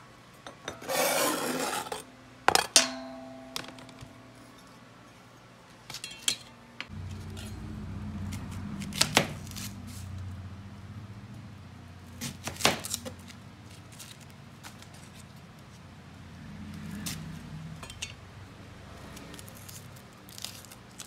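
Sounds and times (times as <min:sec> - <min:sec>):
knife scraping board: 0:00.7 - 0:02.0
steady low hum: 0:06.4 - 0:12.2.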